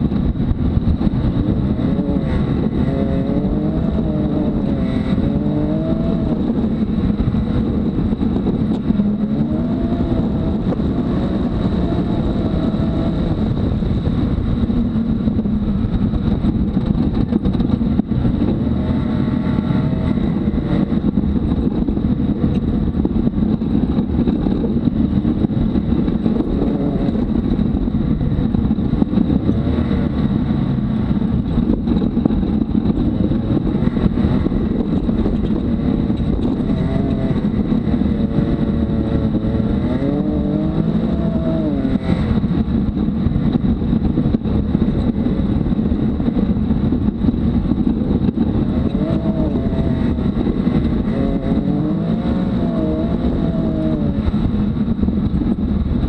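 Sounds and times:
engine running under load: 0.0 - 56.0
ride noise: 0.0 - 56.0.

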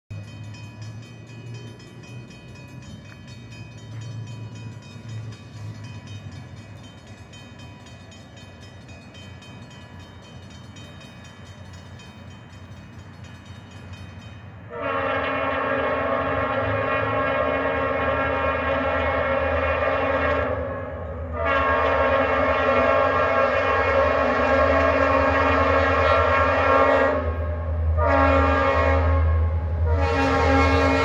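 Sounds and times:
diesel locomotive rumbling: 0.1 - 31.0
locomotive air horn chord: 14.7 - 31.0.

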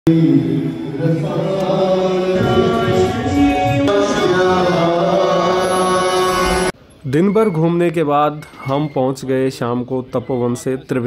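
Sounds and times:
devotional chanting in held notes: 0.1 - 6.7.

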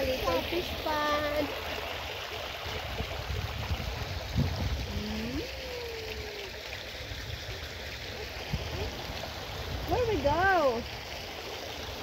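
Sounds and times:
fountain splashing into water: 0.0 - 12.0
wind rumble on microphone: 2.6 - 5.9.

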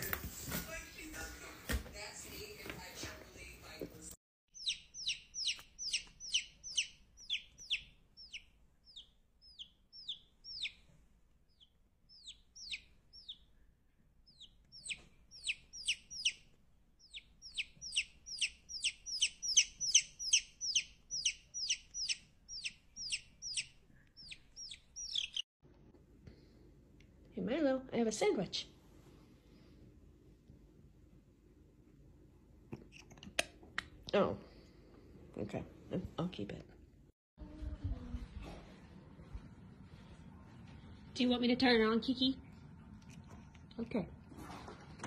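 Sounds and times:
chick peeping: 4.6 - 10.8, 11.5 - 13.5, 14.3 - 16.4, 17.0 - 25.4.

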